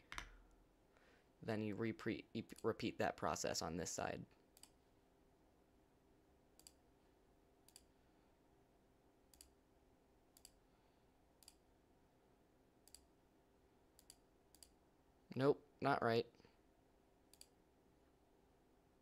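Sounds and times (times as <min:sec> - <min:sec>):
faint steady hum: 0:00.0 - 0:19.0
computer mouse clicks: 0:04.6 - 0:04.8, 0:06.6 - 0:06.8, 0:07.6 - 0:07.9, 0:09.3 - 0:09.6, 0:10.3 - 0:10.6, 0:11.4 - 0:11.6, 0:12.8 - 0:13.1, 0:14.0 - 0:14.8, 0:17.3 - 0:17.6.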